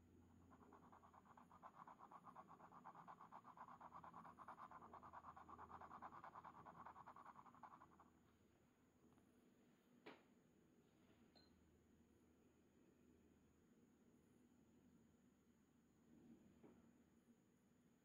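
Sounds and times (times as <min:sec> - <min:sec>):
glass pen scratching on paper: 0:00.5 - 0:08.1.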